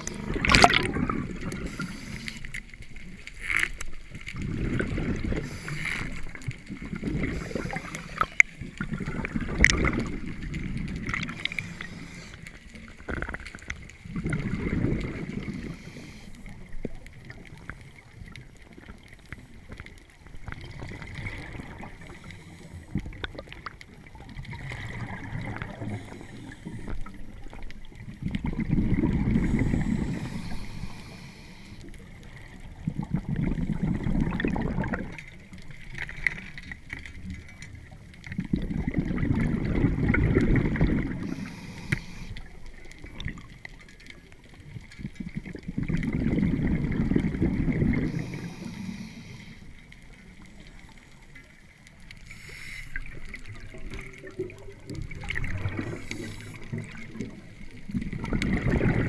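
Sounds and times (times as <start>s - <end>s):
exhaled bubbles rumbling: 0.0s - 52.2s, 52.9s - 59.0s
regulator inhale hiss: 1.6s - 2.6s, 5.4s - 6.2s, 11.4s - 12.6s, 15.5s - 16.6s, 22.0s - 23.1s, 25.8s - 27.0s, 29.4s - 32.0s, 41.2s - 42.6s, 48.0s - 49.9s, 52.2s - 53.3s, 55.9s - 57.0s.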